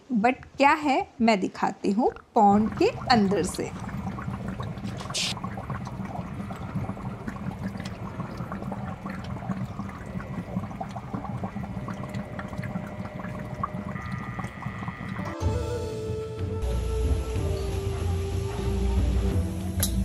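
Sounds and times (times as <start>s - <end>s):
water dripping: 2.0s - 15.4s
water splashing into a pond: 2.4s - 15.3s.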